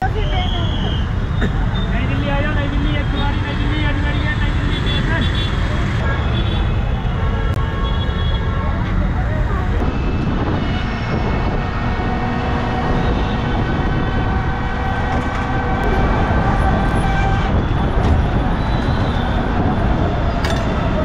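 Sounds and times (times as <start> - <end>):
heavy street traffic: 0.0 - 21.0
car horns honking: 3.0 - 8.9.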